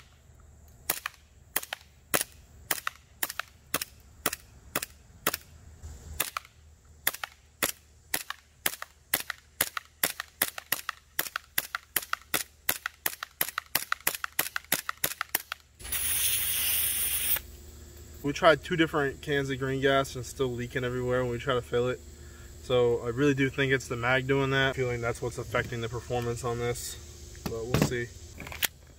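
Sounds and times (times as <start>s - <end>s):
airsoft pistol shots cracking: 0.9s - 5.5s, 6.2s - 15.6s.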